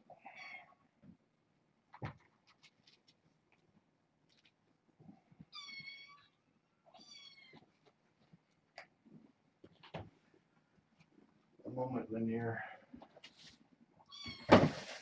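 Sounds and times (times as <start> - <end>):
kitten meowing: 5.5 - 7.6.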